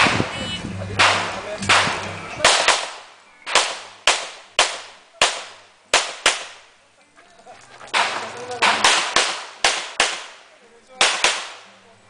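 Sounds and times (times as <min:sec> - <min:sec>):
pistol shots: 0:01.0 - 0:06.6, 0:07.9 - 0:10.4, 0:11.0 - 0:11.7.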